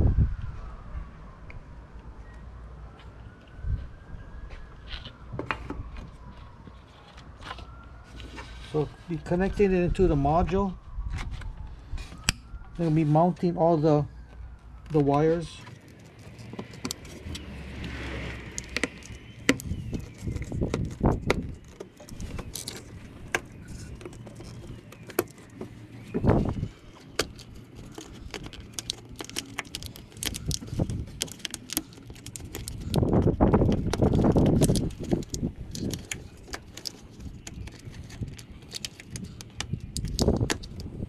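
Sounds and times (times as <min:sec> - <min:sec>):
plastic rustling: 0:18.3 - 0:41.0
plastic clicks and rattles: 0:27.0 - 0:41.0.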